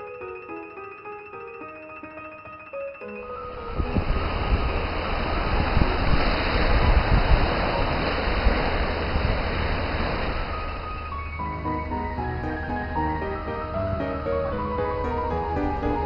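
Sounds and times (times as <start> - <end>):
wind buffeting microphone: 3.5 - 16.0
small waves breaking on sand: 3.9 - 10.9.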